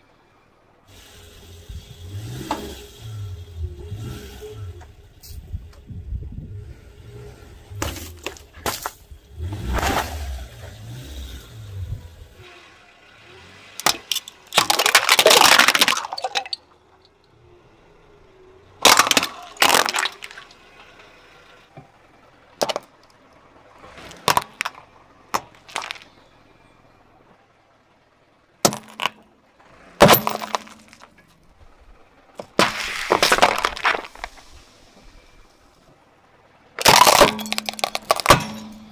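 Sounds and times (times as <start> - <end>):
car low rumble: 0.0 - 38.9
plastic bottles crunching under tyre: 7.7 - 10.4, 13.8 - 16.7, 18.8 - 21.1, 22.6 - 23.2, 23.8 - 26.3, 28.6 - 29.2, 29.8 - 31.2, 32.3 - 34.7, 36.8 - 38.9.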